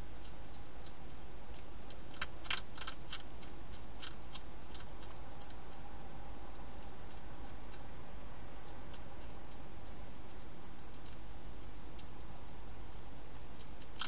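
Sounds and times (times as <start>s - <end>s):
hedgehog chewing clicks: 0.2s - 5.9s, 8.6s - 12.4s, 13.3s - 14.0s.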